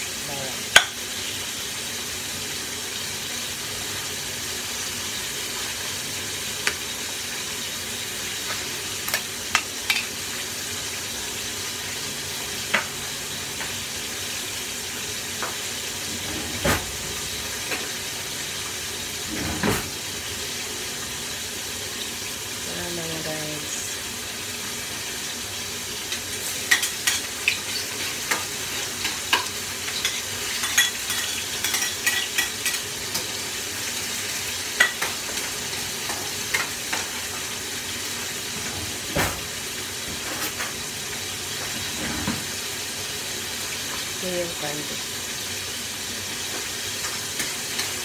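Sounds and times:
food sizzling in a pan: 0.0 - 48.0.

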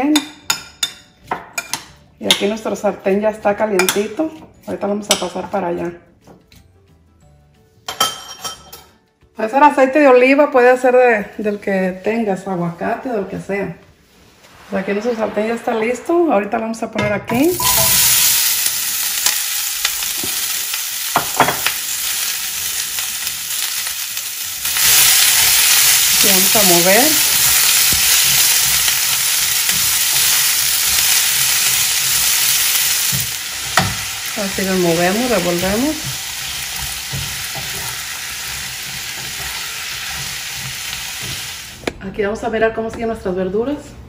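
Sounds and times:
vegetables sizzling in hot oil: 17.4 - 41.9
vegetable pieces knocking in pan: 27.4 - 34.2, 35.2 - 42.0.

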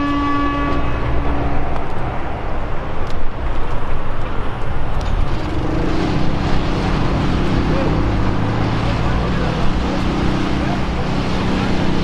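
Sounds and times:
vehicle horn: 0.0 - 1.4
highway traffic rumble: 0.0 - 12.0.

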